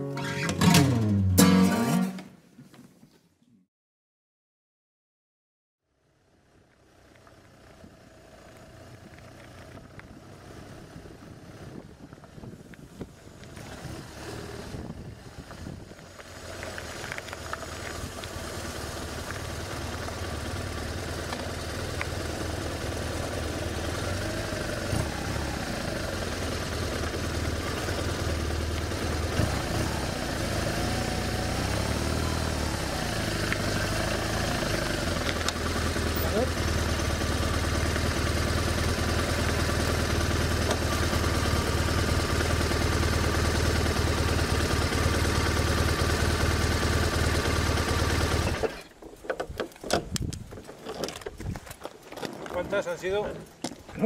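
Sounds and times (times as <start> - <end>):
motorcycle engine running: 6.1 - 49.3.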